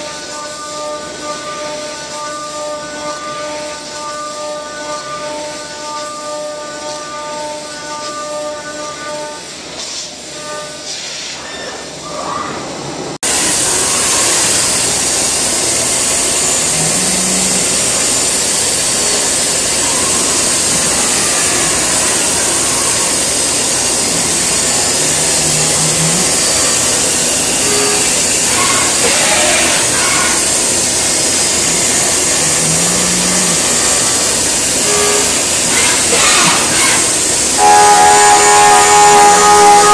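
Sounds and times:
milling machine cutting metal: 0:13.2 - 0:39.9.

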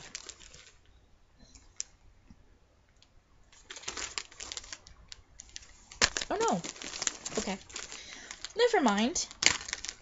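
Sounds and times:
plastic bags rustling: 0:00.0 - 0:00.9, 0:03.5 - 0:10.0.

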